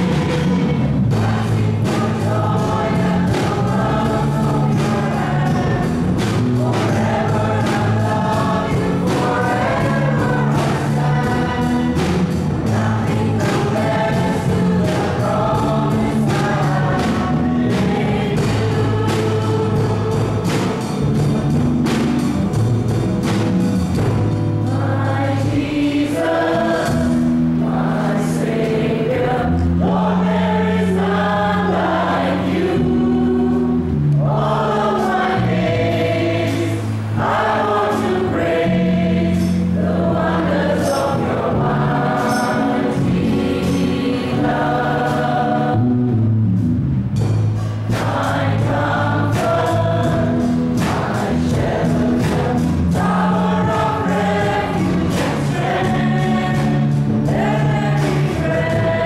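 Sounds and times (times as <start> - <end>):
group singing: 0.0 - 22.5, 24.0 - 46.2, 47.6 - 59.0
held low notes: 0.0 - 59.0
strummed acoustic guitar: 47.2 - 59.0.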